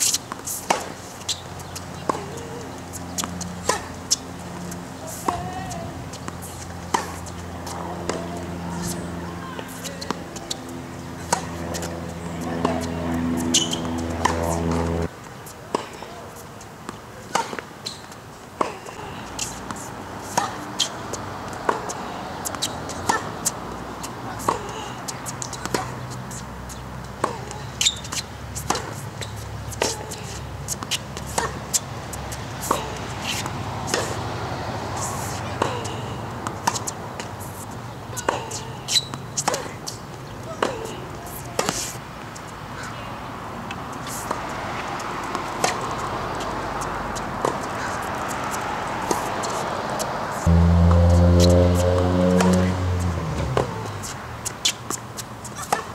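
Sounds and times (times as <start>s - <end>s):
tennis ball hit and bouncing: 0.0s - 15.1s, 16.9s - 26.4s, 27.1s - 31.8s, 32.6s - 34.2s, 35.0s - 37.3s, 38.2s - 42.0s, 47.4s - 53.9s.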